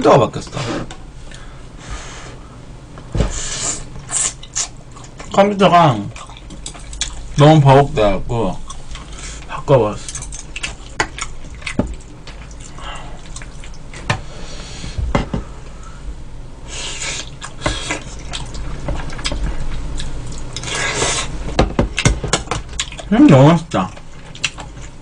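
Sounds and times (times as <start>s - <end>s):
wet chewing and slurping: 6.1s - 7.4s, 10.4s - 14.1s, 16.8s - 21.4s, 22.7s - 23.1s, 23.9s - 25.0s.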